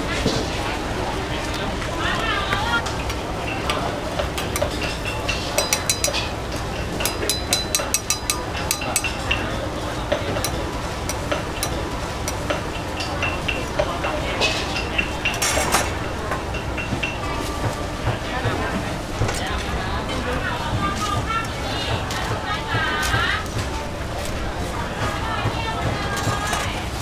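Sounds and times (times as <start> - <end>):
metal utensils clinking on pan: 3.5 - 17.8.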